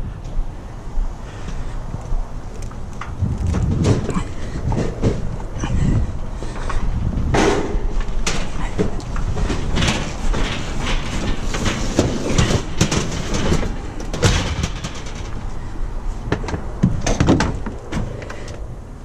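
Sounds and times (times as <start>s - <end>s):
knocks and rattles: 2.6s - 18.5s
metal scraping: 3.0s - 15.8s.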